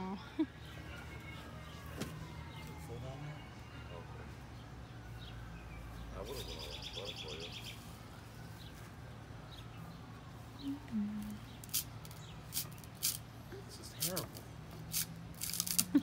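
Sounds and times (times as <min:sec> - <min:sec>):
songbird trilling: 0:06.2 - 0:07.8
person humming: 0:10.6 - 0:11.4.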